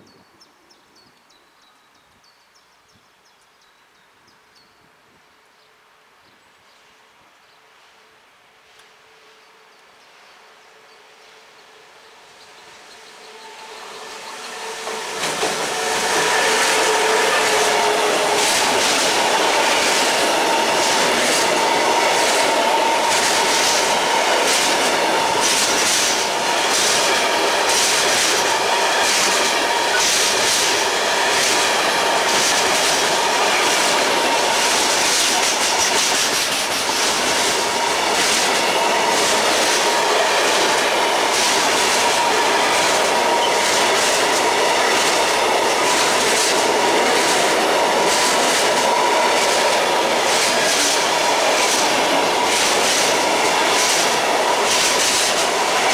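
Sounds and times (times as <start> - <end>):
electric locomotive passing: 11.6 - 55.9.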